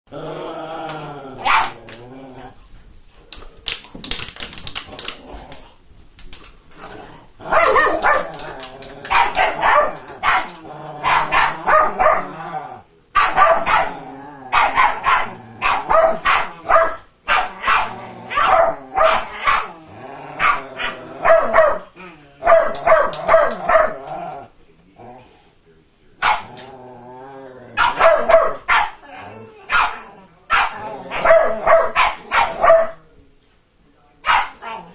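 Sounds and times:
dogs barking: 0:01.4 - 0:01.9, 0:07.4 - 0:12.4, 0:13.2 - 0:19.8, 0:20.4 - 0:24.1, 0:26.2 - 0:26.6, 0:27.8 - 0:29.0, 0:29.7 - 0:33.0, 0:34.2 - 0:34.9.

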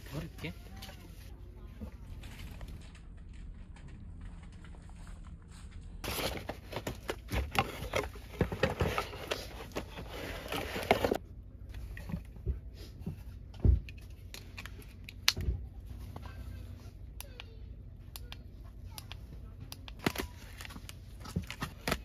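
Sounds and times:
cardboard box rustling: 0:06.0 - 0:11.2.

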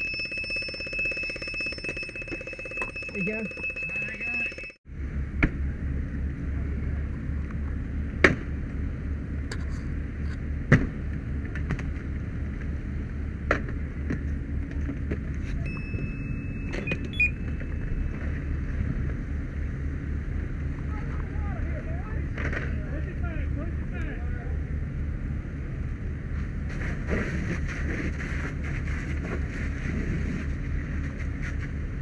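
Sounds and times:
thin high steady tone: 0:00.0 - 0:04.8, 0:15.7 - 0:18.2
engine rumbling: 0:00.0 - 0:32.0.

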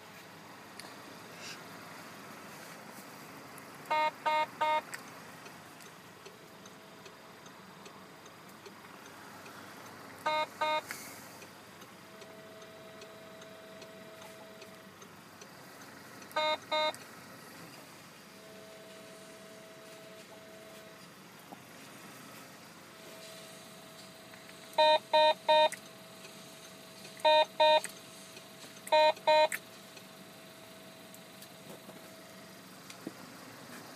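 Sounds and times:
faint steady hum: 0:00.0 - 0:33.6
short electronic beeps: 0:03.9 - 0:04.9, 0:10.2 - 0:10.9, 0:16.4 - 0:17.0, 0:24.8 - 0:25.8, 0:27.2 - 0:27.9, 0:28.9 - 0:29.6.

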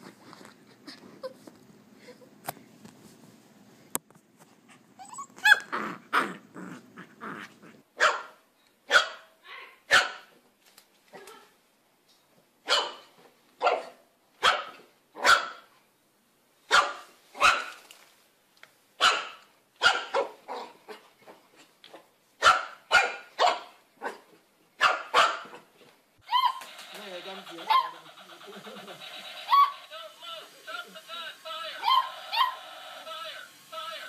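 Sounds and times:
puppy barking: 0:05.4 - 0:06.3, 0:08.0 - 0:09.3, 0:09.9 - 0:10.3, 0:12.7 - 0:13.0, 0:13.6 - 0:15.7, 0:16.7 - 0:17.7, 0:19.0 - 0:20.8, 0:22.4 - 0:25.6, 0:26.3 - 0:26.7, 0:27.6 - 0:28.0, 0:29.5 - 0:29.8, 0:31.8 - 0:32.6.

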